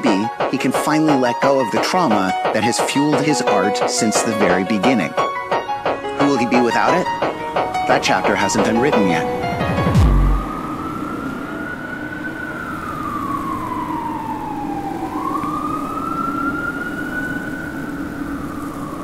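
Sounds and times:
siren wailing: 0.0 - 19.0
steady low rumble: 9.9 - 10.6.

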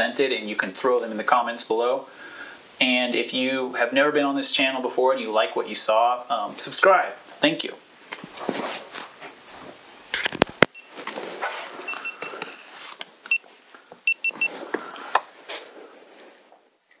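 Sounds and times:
rustling handling noise: 8.0 - 17.0.

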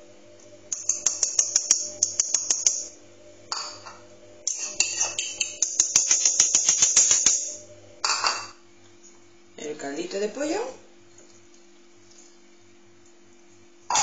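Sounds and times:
spoon tapping ceramic bowl: 0.7 - 2.9, 3.6 - 6.1.

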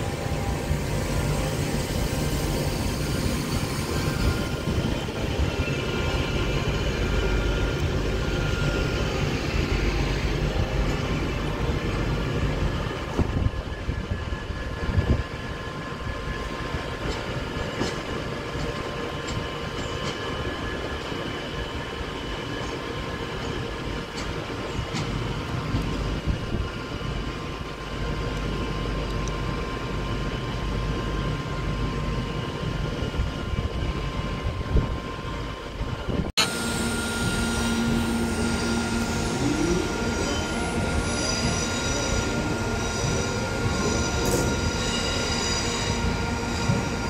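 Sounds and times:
train wheels rumbling: 0.0 - 47.0
high whining tones: 36.4 - 47.0.

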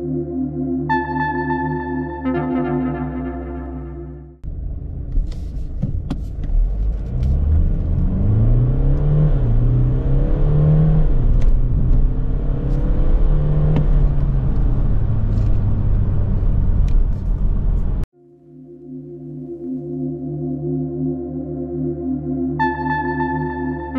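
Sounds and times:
diesel engine accelerating: 4.4 - 18.1.

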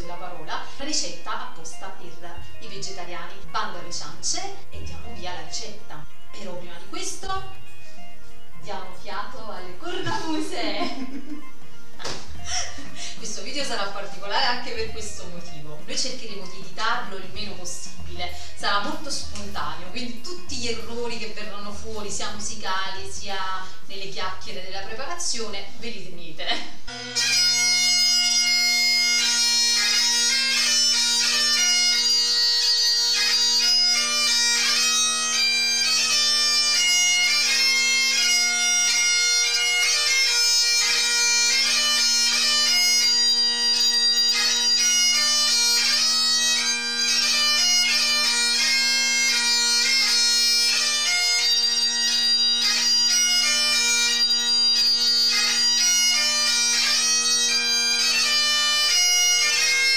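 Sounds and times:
bagpipes playing a tune: 26.9 - 59.9.

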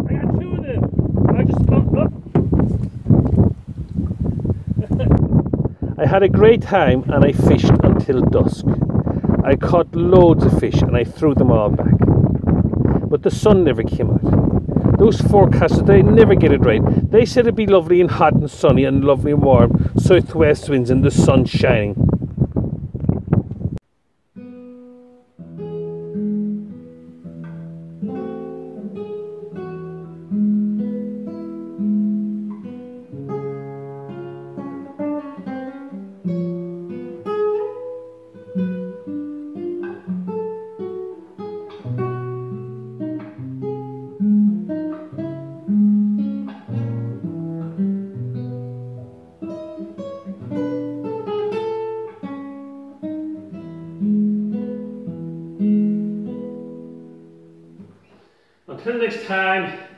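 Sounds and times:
classical guitar fingerstyle melody: 11.8 - 13.1, 24.3 - 58.2.

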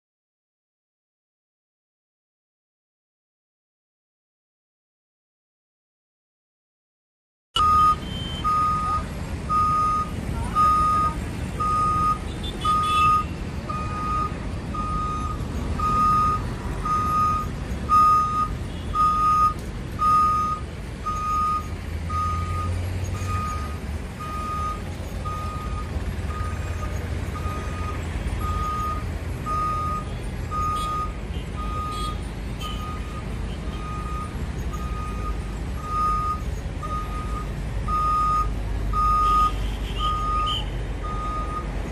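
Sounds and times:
warning beeper: 7.6 - 39.5.

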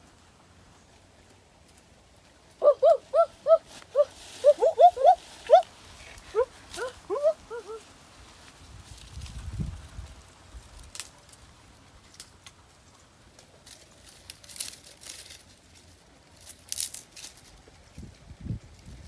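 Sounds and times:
twigs and grass crackling: 0.0 - 19.0.

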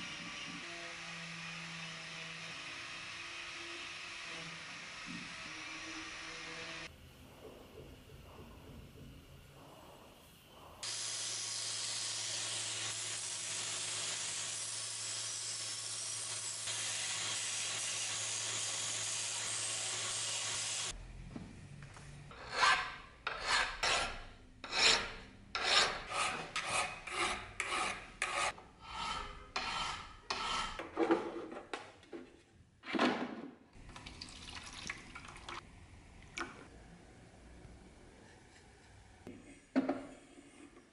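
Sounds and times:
hand file rasping on steel: 22.3 - 30.9
water trickling onto grinder stone: 33.8 - 35.6.

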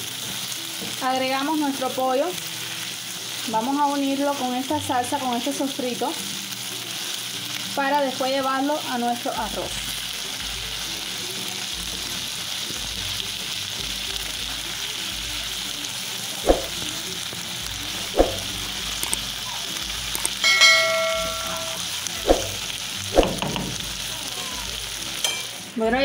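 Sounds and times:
food sizzling in a frying pan: 0.0 - 26.0
spatula knocking on pan: 23.2 - 23.8.

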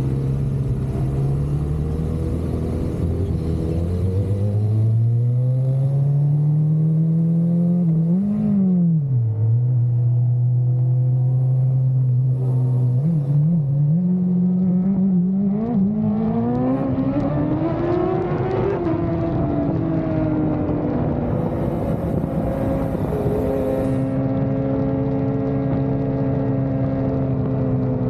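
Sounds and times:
motorcycle engine revving: 0.0 - 26.9
rushing wind noise: 16.0 - 28.0.

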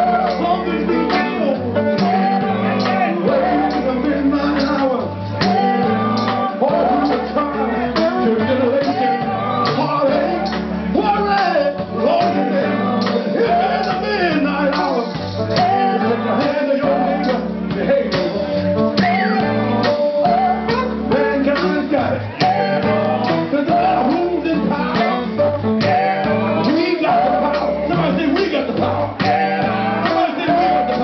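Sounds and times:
bass: 0.0 - 31.0
drums: 0.0 - 31.0
electric guitars: 0.0 - 31.0
man singing: 0.0 - 31.0.

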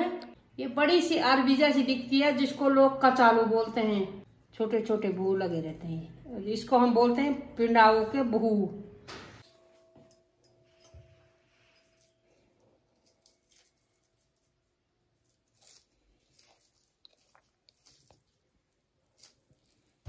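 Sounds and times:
taro being peeled by hand: 11.8 - 20.0.

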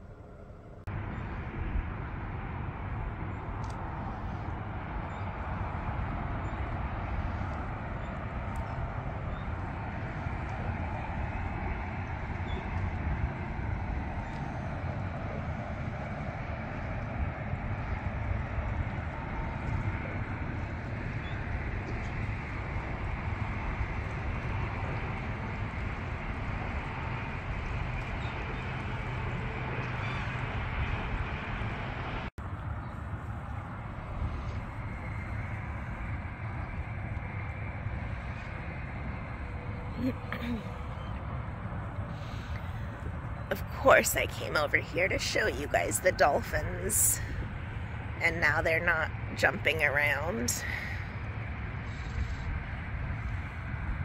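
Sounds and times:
low uneven rumble: 0.0 - 54.0
wind noise on microphone: 0.0 - 54.0
faint bird calls: 29.8 - 30.5, 51.8 - 52.6.

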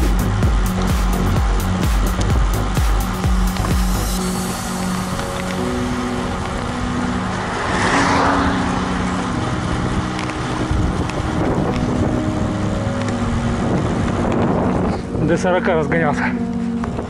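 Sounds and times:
bicycle tyres rolling on asphalt: 0.0 - 17.0
wind rushing over microphone: 0.0 - 17.0.

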